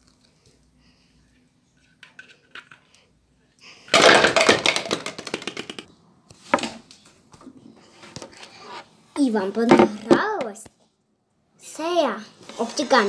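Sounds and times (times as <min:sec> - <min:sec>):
plastic toy pins clattering: 0:03.9 - 0:05.9.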